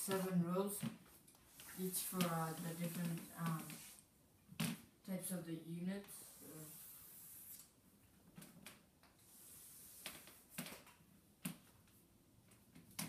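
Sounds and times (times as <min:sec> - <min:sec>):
chalk tapping and scratching: 0:00.0 - 0:04.0, 0:09.2 - 0:10.8.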